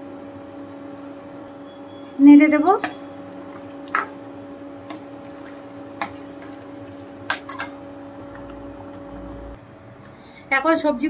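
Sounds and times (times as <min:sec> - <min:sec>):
steady hum: 0:00.0 - 0:10.5
ladle stirring thick lentils: 0:02.9 - 0:09.0.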